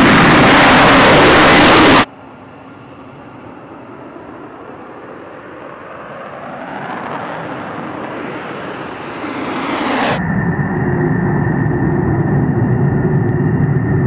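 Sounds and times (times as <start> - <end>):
jet engine roaring at takeoff: 0.0 - 14.0
jet high whine: 0.0 - 14.0.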